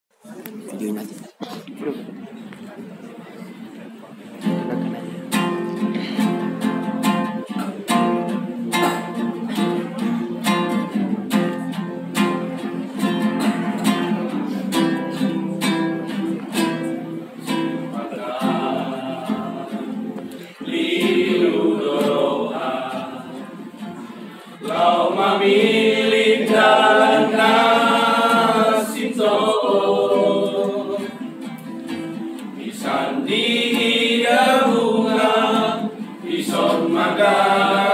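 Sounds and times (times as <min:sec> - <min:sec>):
strummed guitar: 0:04.3 - 0:37.9
church choir singing: 0:17.4 - 0:31.4, 0:32.5 - 0:37.9.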